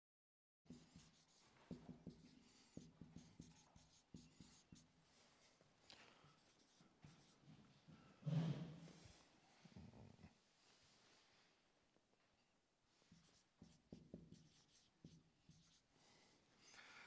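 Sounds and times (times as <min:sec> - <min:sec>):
marker writing on whiteboard: 0:00.7 - 0:05.0, 0:06.3 - 0:07.4, 0:13.1 - 0:15.9.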